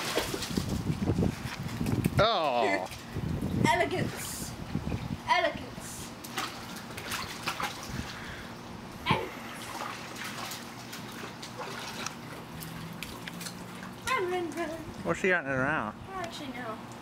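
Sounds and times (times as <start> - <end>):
water splashing in pool: 0.0 - 2.1, 6.0 - 15.1.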